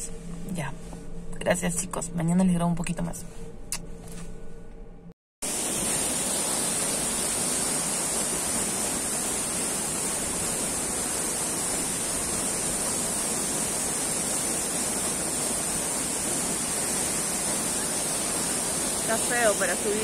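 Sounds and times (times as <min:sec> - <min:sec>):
waterfall rushing: 0:05.5 - 0:20.0.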